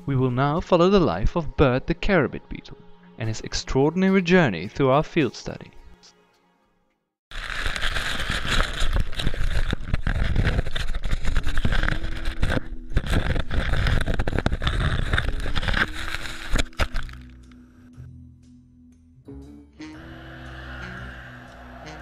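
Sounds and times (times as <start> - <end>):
leaves rustling against camera: 7.3 - 17.4.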